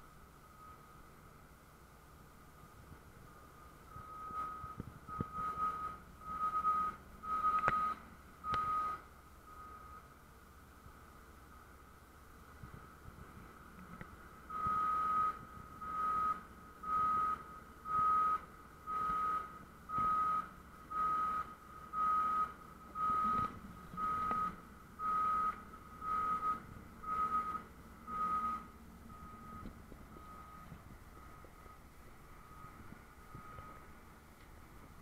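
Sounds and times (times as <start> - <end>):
reversing warning beeper: 0.4 - 1.3, 3.2 - 10.2, 14.5 - 33.9.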